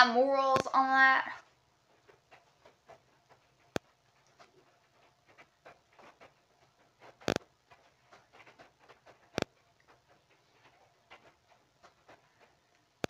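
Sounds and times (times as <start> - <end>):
fingers ticking on phone: 7.1 - 7.5, 9.1 - 9.6.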